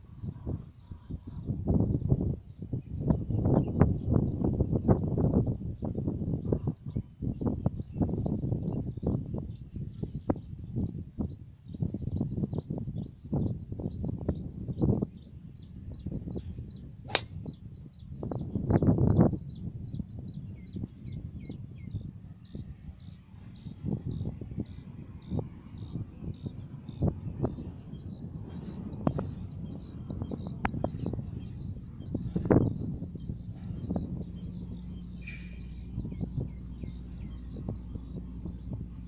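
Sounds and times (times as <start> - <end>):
wind rumble on microphone: 0.0 - 39.0
golf ball struck: 17.1 - 17.4.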